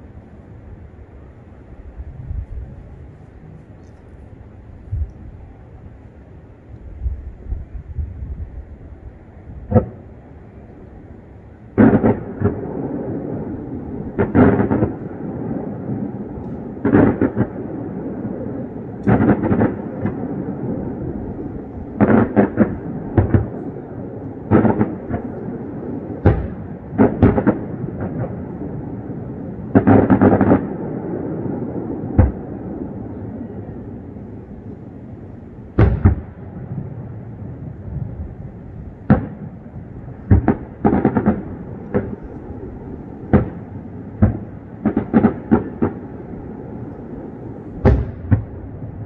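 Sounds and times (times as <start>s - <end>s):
fireworks booming: 9.6s - 10.6s, 11.7s - 49.0s.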